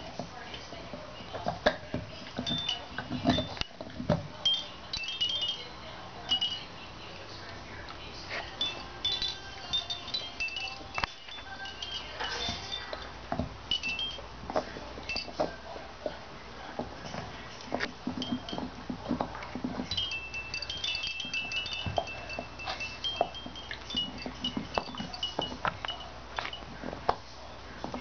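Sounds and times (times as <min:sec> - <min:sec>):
plastic toys clinking: 0:02.2 - 0:06.7, 0:08.4 - 0:15.5, 0:17.7 - 0:27.2.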